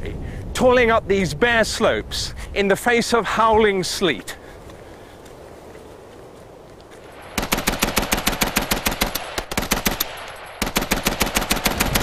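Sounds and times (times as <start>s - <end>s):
machine-gun fire: 7.2s - 12.0s.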